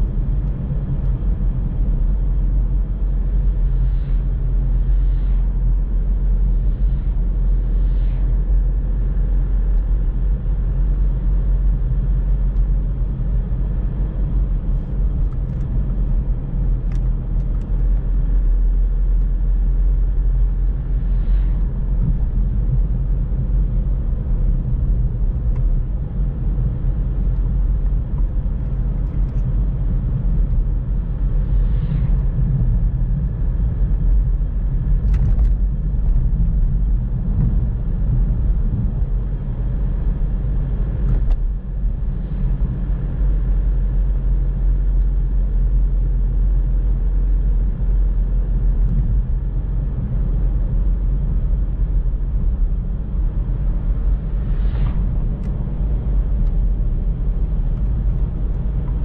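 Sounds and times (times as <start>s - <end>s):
car engine and tyres rumbling: 0.0s - 59.0s
passing traffic whooshes: 52.6s - 59.0s.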